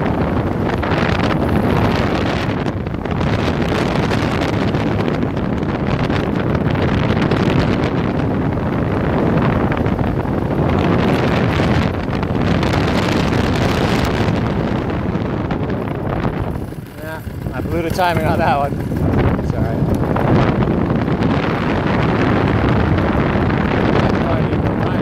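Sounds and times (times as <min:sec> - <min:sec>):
wind buffeting microphone: 0:00.0 - 0:25.0
paramotor engine running: 0:08.6 - 0:25.0.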